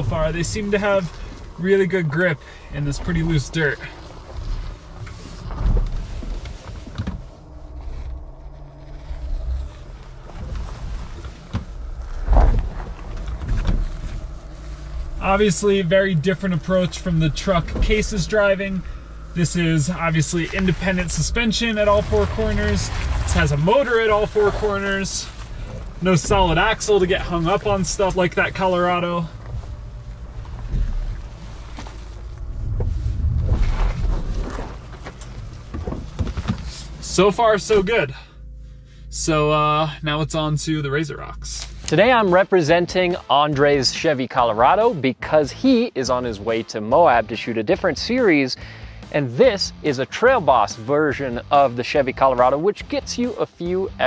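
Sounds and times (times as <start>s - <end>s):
low vehicle rumble: 0.0s - 54.0s
tyres crunching on rock: 0.1s - 37.0s
loud thump: 11.4s - 14.4s.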